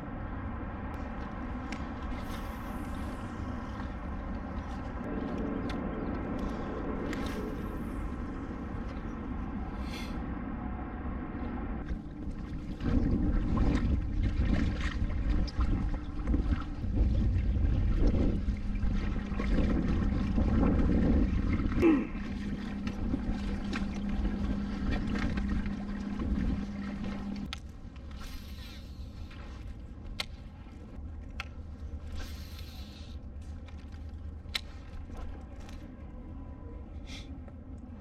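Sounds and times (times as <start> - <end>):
wind noise: 0.0 - 29.6
steady low hum: 0.0 - 38.0
water lapping against hull: 0.1 - 38.0.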